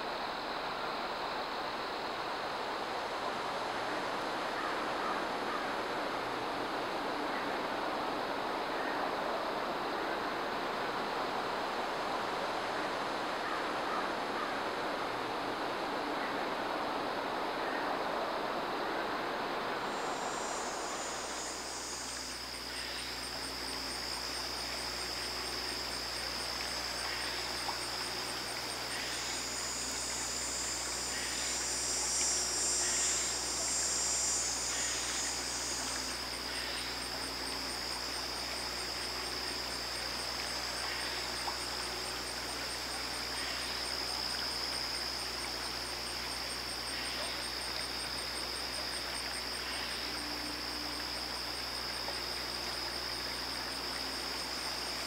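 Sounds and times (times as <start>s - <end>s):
soft even hiss: 0.0s - 55.0s
high-pitched insect drone: 19.8s - 55.0s.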